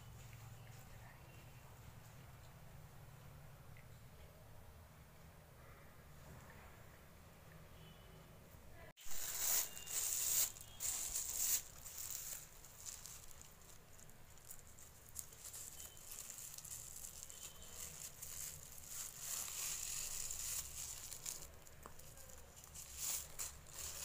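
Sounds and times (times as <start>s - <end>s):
plastic bag crinkling: 9.0s - 24.0s.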